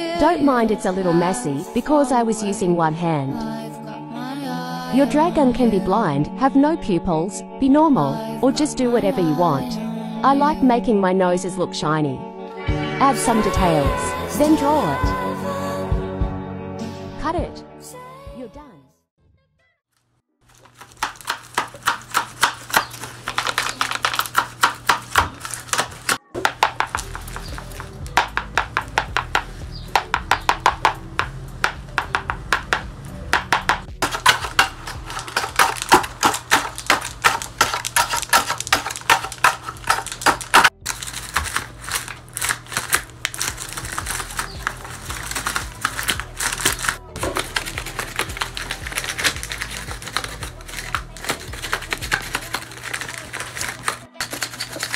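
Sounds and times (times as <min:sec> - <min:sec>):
paper puppet jaws clacking: 0:41.3 - 0:54.9.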